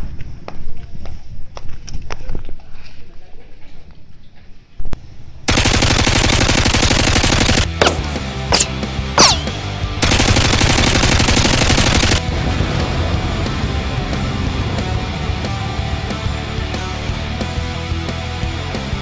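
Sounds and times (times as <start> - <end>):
automatic rifle fire: 5.5 - 12.2.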